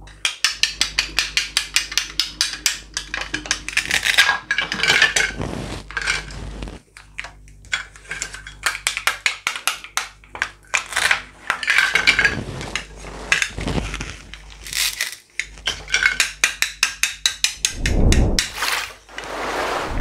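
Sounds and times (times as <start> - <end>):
plastic toy pieces clattering: 10.3 - 16.4
short scrapes: 17.7 - 20.0.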